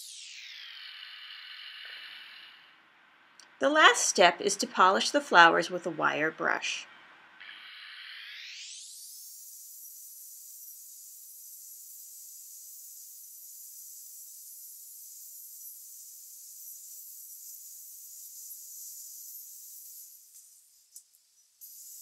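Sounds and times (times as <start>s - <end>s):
angle grinder wire brush whining: 0.0s - 2.8s.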